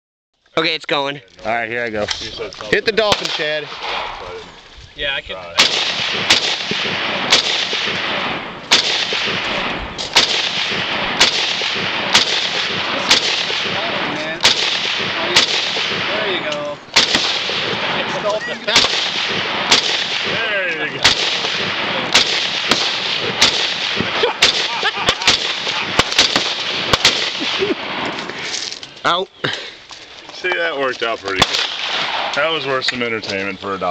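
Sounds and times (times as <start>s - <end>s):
rifle shots: 2.9s - 4.4s, 5.6s - 28.4s, 31.3s - 32.8s.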